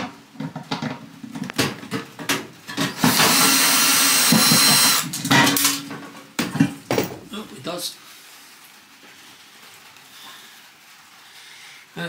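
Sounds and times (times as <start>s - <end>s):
cordless drill running: 3.0s - 5.2s.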